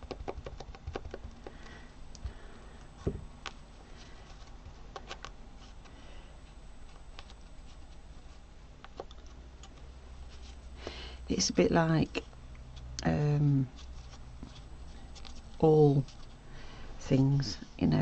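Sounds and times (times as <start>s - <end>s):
glue stick clicks and taps: 0.0s - 2.3s.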